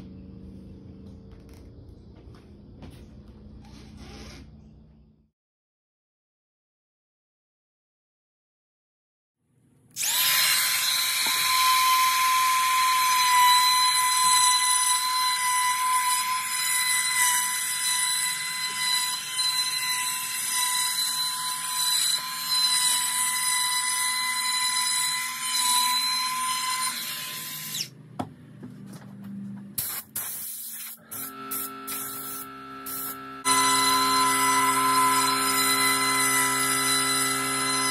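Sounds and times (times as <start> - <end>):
router whining and cutting wood: 9.9 - 28.0, 31.1 - 37.9.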